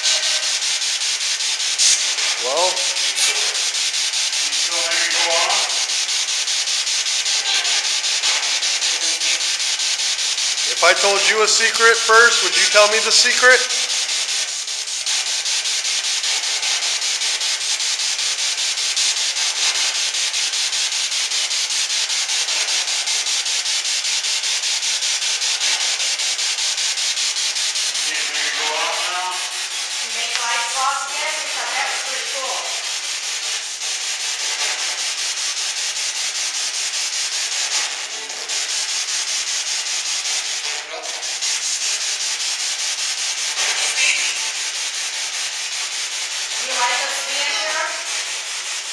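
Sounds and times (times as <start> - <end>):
snatches of voice-like sound: 1.7 - 3.6, 10.7 - 13.9, 43.6 - 44.6
choppy radio static hiss: 10.7 - 13.9.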